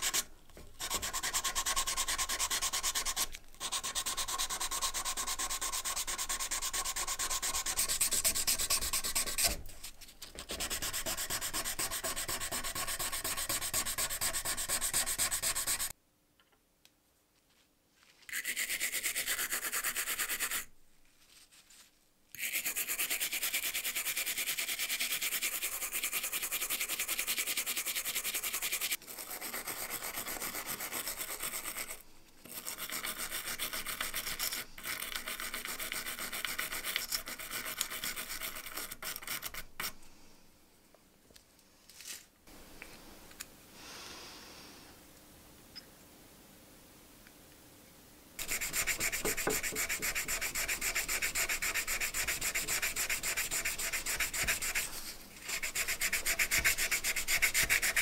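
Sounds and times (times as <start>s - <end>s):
sandpaper rubbing on brass: 0.8s - 9.6s, 10.4s - 15.9s, 18.3s - 20.7s, 22.4s - 39.7s, 48.4s - 58.0s.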